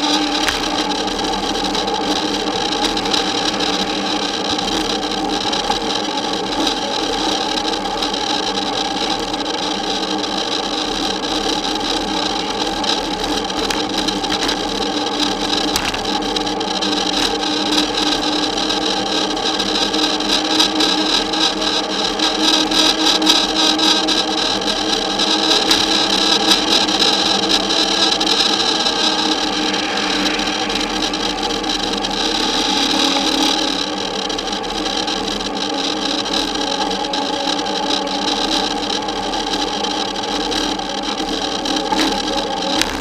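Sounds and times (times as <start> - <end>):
wind and road noise: 0.0 - 34.6, 40.9 - 43.0
constant whine: 0.0 - 43.0.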